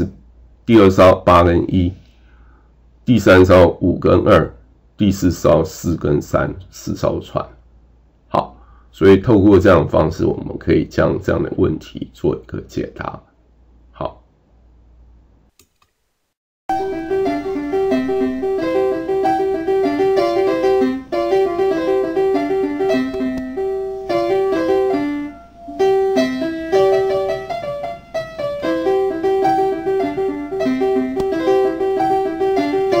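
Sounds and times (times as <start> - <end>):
lively melody of quick notes: 16.7 - 33.0.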